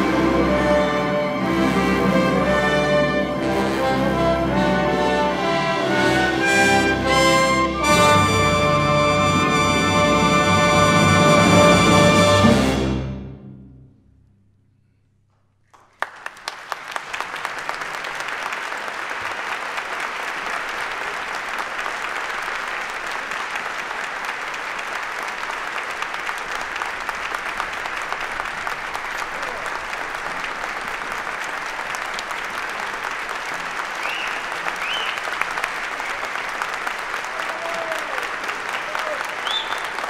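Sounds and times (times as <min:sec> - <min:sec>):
audience applause: 0:15.7 - 0:40.0.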